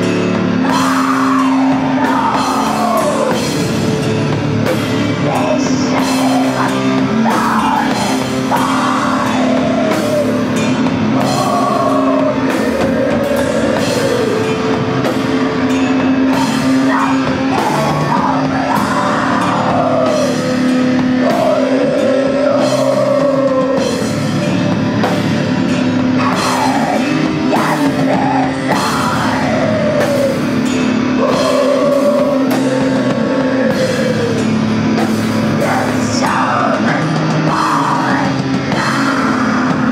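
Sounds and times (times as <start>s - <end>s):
droning bass and guitar: 0.0s - 39.9s
slow drum beat with cymbals: 0.0s - 39.9s
woman singing wailing lines: 0.6s - 3.6s, 5.3s - 24.1s.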